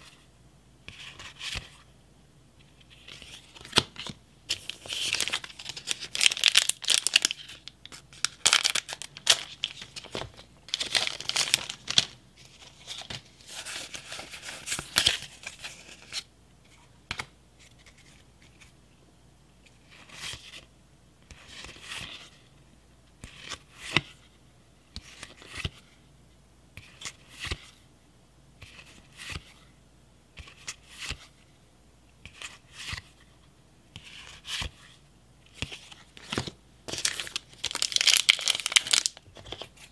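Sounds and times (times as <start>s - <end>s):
foil pack crinkling: 4.6s - 12.2s, 36.9s - 39.7s.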